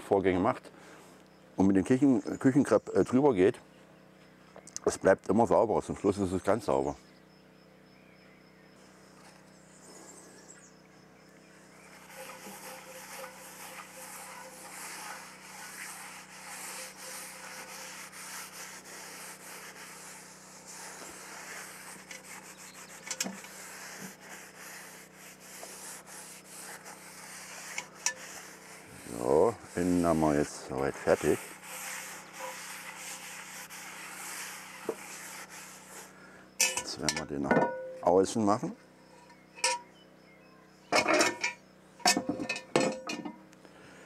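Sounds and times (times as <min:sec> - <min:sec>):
paper towel scrubbing pot: 0:11.9 - 0:37.4.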